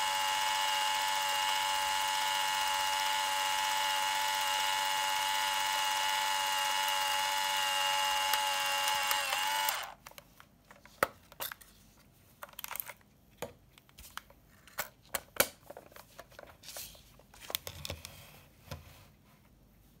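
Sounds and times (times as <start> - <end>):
camera motor whirring: 0.0 - 10.0.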